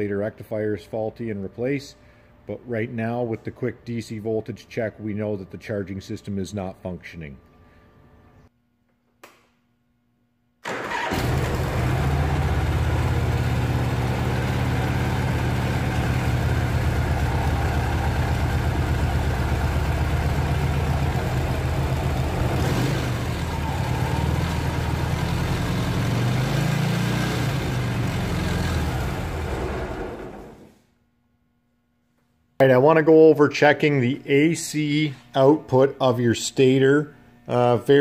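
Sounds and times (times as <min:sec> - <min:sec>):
motorcycle engine starting and running: 0:10.7 - 0:30.8.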